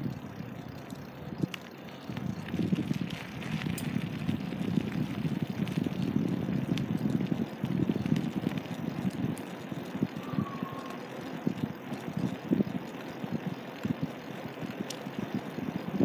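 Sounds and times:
wind and road noise: 0.0s - 16.0s
faint high chirp: 10.2s - 11.1s.

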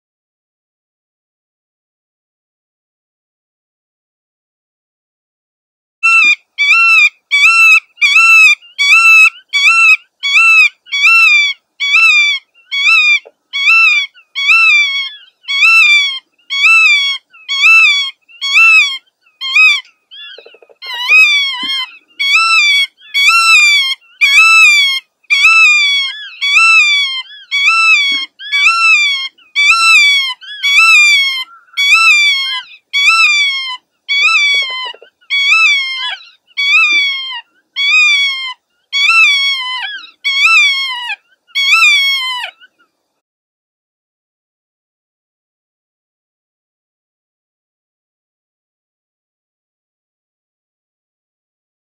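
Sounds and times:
godwit calling: 6.0s - 42.9s.

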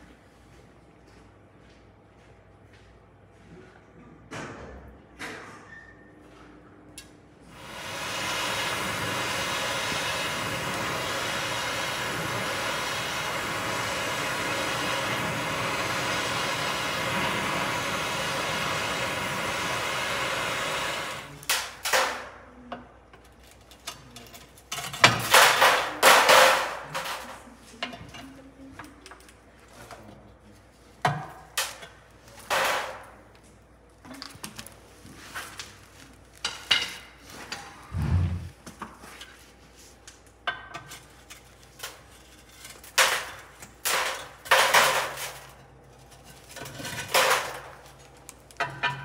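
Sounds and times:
cutting torch hissing: 7.5s - 21.4s.

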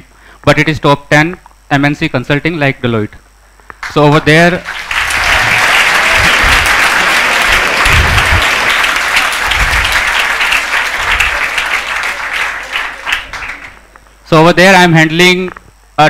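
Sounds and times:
students clapping: 4.6s - 13.9s.

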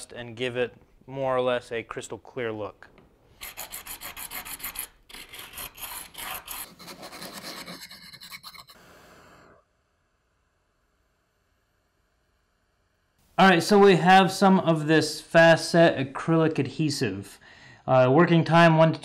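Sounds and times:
acrylic being sanded: 3.4s - 8.8s.

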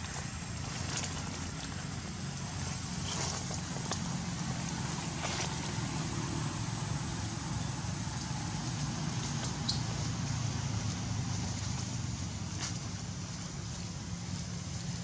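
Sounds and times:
faint rustles: 0.0s - 6.5s
steady low hum: 0.0s - 15.0s.

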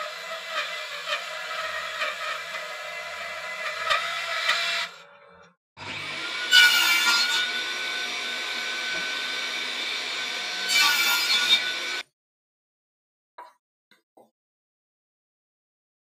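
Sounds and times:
router motor whining: 0.0s - 6.7s, 7.3s - 10.8s, 11.6s - 12.0s
power tool running: 5.8s - 12.0s.

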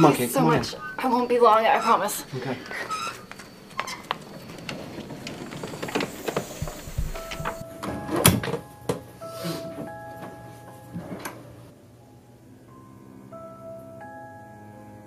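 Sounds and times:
screen door shutting: 0.0s - 8.7s
sparse held music notes: 6.5s - 15.0s.

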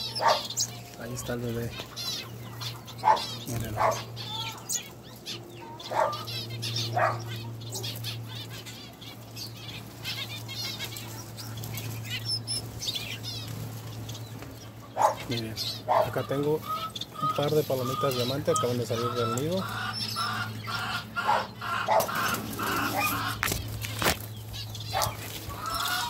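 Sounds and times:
finches chirping and twittering: 0.0s - 26.0s
wing flutters: 21.9s - 26.0s.

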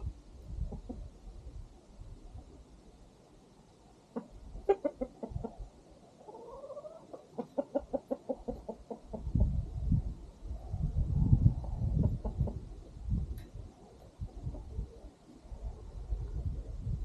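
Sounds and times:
chickens clucking: 0.0s - 1.2s, 4.0s - 9.7s, 11.5s - 15.1s.

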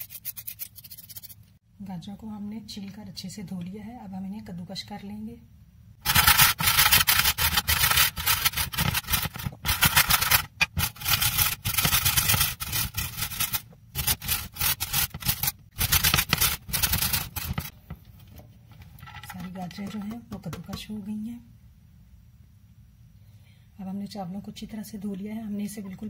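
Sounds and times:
carrots rasping on metal grater: 0.0s - 1.4s, 6.1s - 17.7s.

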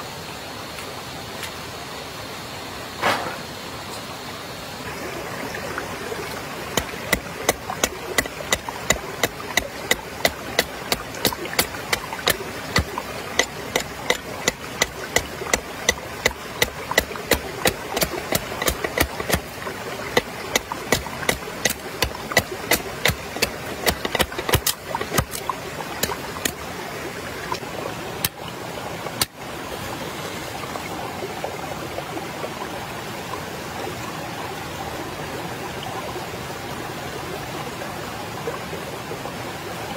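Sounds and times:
stream flowing: 0.0s - 39.9s
sharp evenly spaced knocks: 6.8s - 26.6s.

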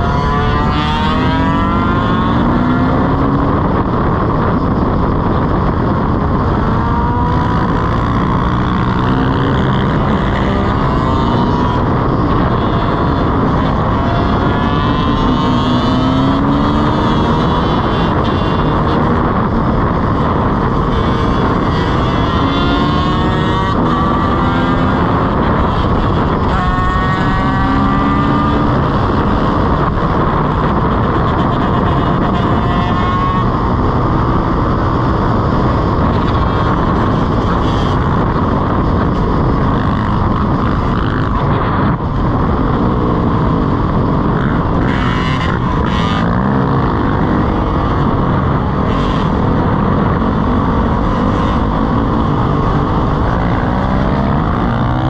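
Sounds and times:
dirt bike engines revving: 0.0s - 55.0s
wind rushing: 0.0s - 55.0s.

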